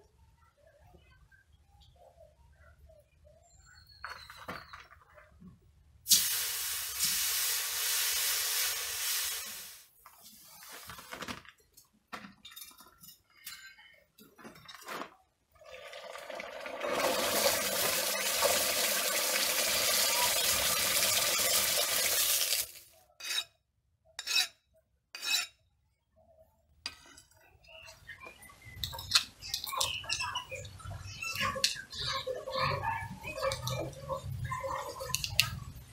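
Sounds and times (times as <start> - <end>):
hot steel hissing in water: 6.1 - 9.8.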